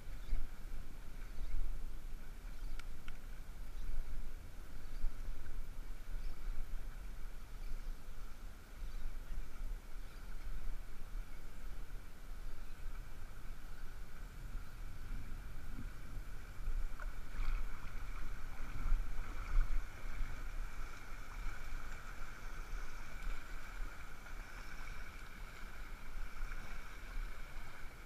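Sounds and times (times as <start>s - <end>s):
water sloshing and lapping: 12.8s - 28.0s.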